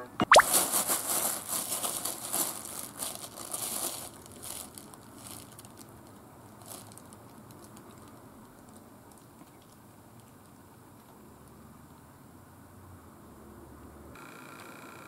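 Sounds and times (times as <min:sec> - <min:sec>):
plastic bag crinkling: 0:00.3 - 0:09.8.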